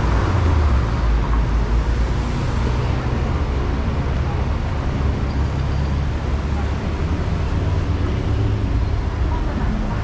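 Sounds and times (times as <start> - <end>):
road noise: 0.0 - 10.0
vehicle engines rumbling: 0.0 - 10.0.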